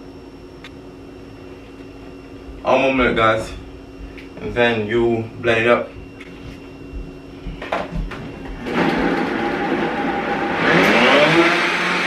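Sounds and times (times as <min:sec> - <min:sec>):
blender running: 0:08.6 - 0:12.0.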